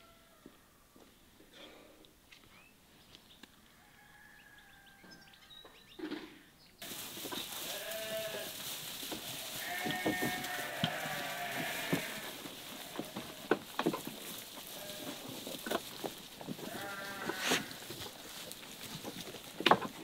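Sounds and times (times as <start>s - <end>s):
sheep bleating: 7.6s - 8.6s, 9.5s - 13.6s, 14.7s - 15.3s, 16.6s - 17.9s.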